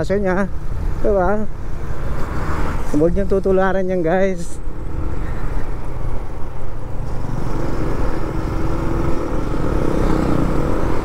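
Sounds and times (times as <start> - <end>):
motorcycle engine: 4.6 - 11.0.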